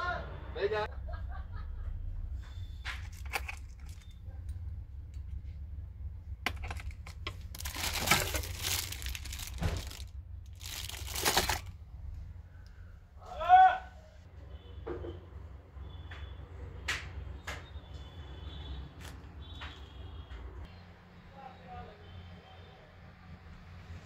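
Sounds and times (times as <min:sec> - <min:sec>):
rustling crinkling: 0:02.9 - 0:04.2, 0:06.4 - 0:11.8.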